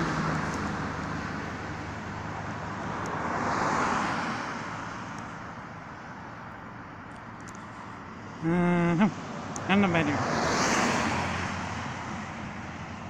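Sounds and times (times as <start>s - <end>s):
vehicle passing close by: 0.0s - 5.2s, 8.3s - 13.0s
road traffic: 0.0s - 13.0s.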